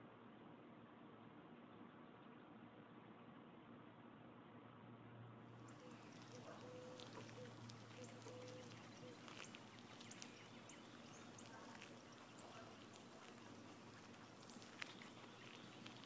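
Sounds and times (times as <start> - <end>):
low steady hum: 0.0 - 16.0
faint high chirps: 5.7 - 16.0.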